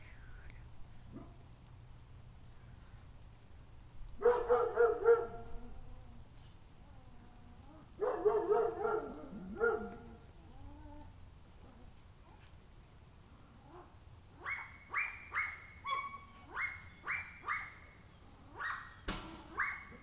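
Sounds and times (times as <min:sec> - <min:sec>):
dog barking: 0:04.2 - 0:05.5, 0:08.0 - 0:10.1, 0:13.7 - 0:17.8, 0:18.6 - 0:20.0.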